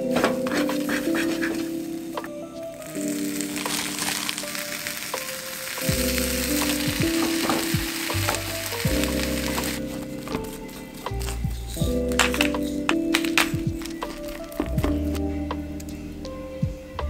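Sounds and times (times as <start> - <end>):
background music: 0.0 - 17.0
eggs and meat sizzling in oil: 3.0 - 10.8.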